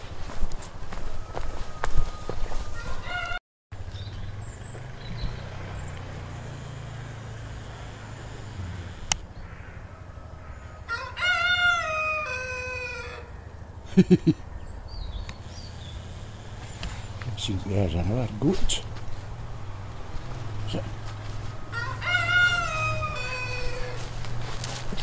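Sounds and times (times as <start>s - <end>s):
rooster crowing: 0.9s - 3.4s, 7.8s - 13.4s, 21.2s - 24.6s.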